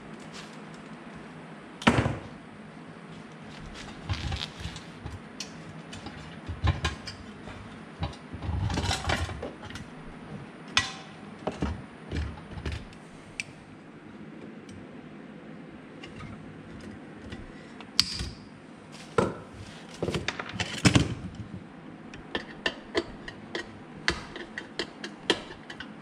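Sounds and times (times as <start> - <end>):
steady low hum: 0.0 - 26.0
tools knocking and clattering: 5.9 - 9.8.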